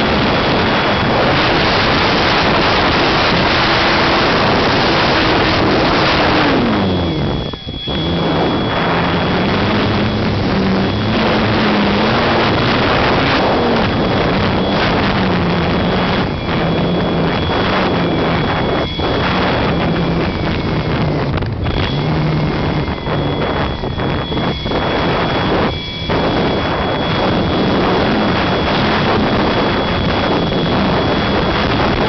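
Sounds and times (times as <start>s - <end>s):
low wavering hum: 0.0s - 32.0s
wind rushing over microphone: 0.0s - 32.0s
thin high tone: 0.4s - 32.0s.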